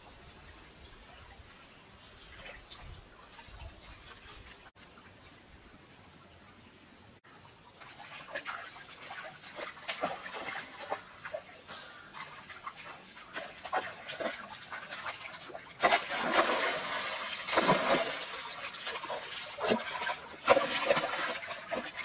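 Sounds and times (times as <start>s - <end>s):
feet splashing through stream: 7.7s - 22.0s
basket swept through water: 15.5s - 21.9s.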